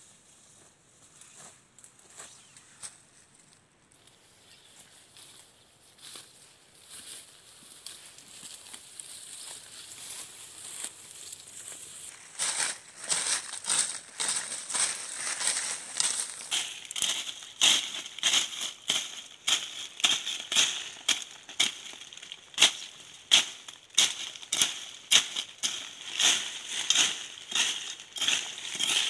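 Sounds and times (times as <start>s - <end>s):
hand blade scraping dry grass and dirt: 7.8s - 29.0s.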